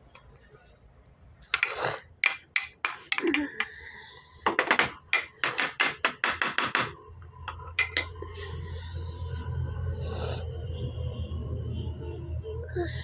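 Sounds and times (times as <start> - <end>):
sharp taps and knocks: 1.5 - 3.8, 4.5 - 8.2.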